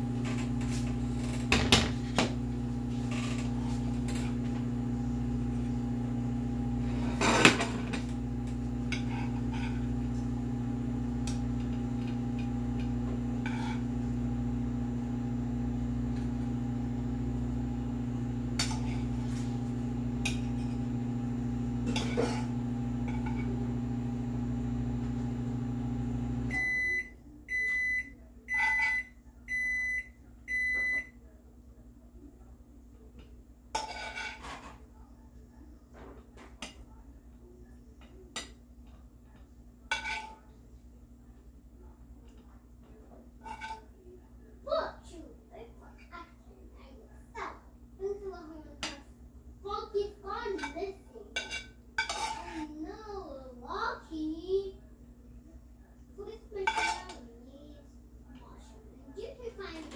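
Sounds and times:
microwave beeping: 0.0 - 31.2
microwave oven humming: 0.0 - 33.8
spoon clinking and scraping pan: 8.8 - 10.0, 33.8 - 34.8, 39.9 - 40.5, 43.4 - 43.9, 50.4 - 52.7, 56.6 - 57.2.

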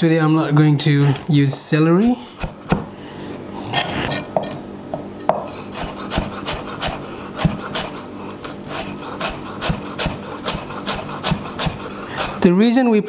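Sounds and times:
knife chopping on wooden board: 2.0 - 2.9, 5.3 - 8.0, 8.8 - 12.4.

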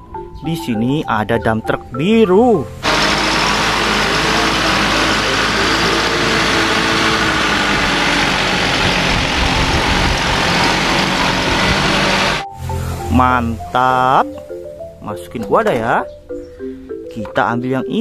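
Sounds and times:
truck engine rumbling: 2.7 - 13.7.

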